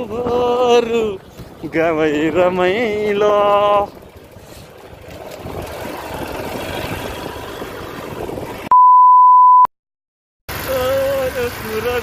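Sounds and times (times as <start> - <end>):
motorcycle on rocky track: 0.0 - 8.7
test-tone beep: 8.7 - 9.7.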